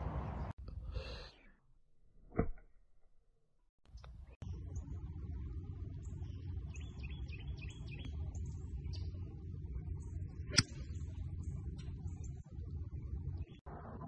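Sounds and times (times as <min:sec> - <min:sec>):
birds chirping: 0:03.8 - 0:13.8
steady low rumble: 0:03.9 - 0:14.0
golf club striking ball: 0:10.5 - 0:10.8.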